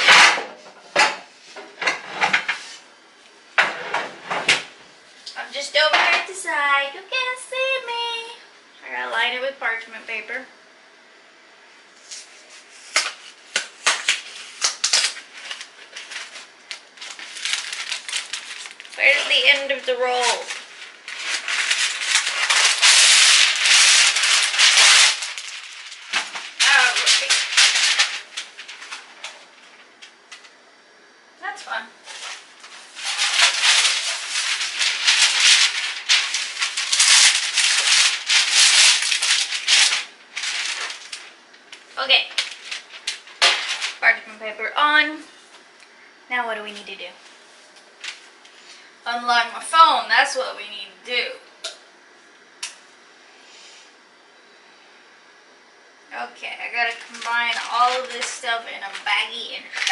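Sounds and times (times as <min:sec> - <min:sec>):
paper rustling: 0:12.0 - 0:30.5, 0:32.1 - 0:44.0, 0:48.0 - 0:48.4, 0:56.6 - 0:59.9.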